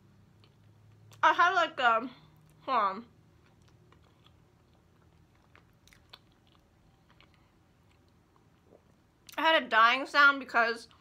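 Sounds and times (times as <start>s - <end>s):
faint chewing: 3.2s - 9.4s.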